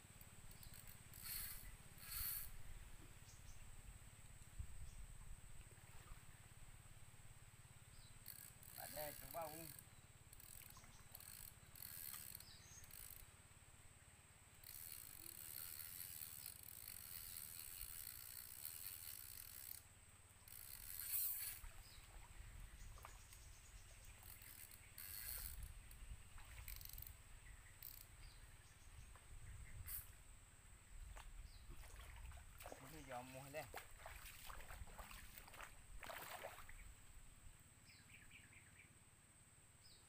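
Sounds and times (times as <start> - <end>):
fishing reel whirring and clicking: 0.2 - 2.6, 8.0 - 13.3, 14.5 - 22.0, 23.3 - 28.4, 29.8 - 30.1.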